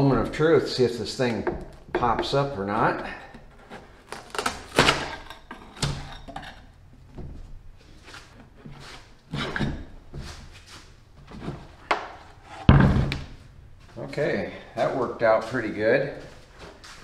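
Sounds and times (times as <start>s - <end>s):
putty knife scraping and knocking: 1.2s - 7.1s, 7.9s - 10.6s.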